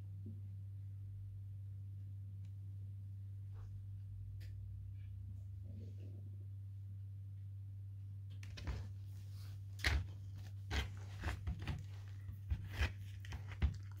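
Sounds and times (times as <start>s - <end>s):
puppy gnawing on a bone: 9.8s - 14.0s.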